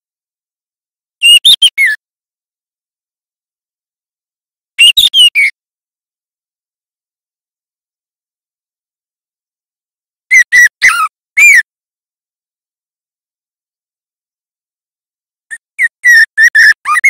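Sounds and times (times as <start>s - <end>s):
bird singing whistled notes: 1.2s - 2.0s, 4.8s - 5.6s, 15.5s - 17.0s.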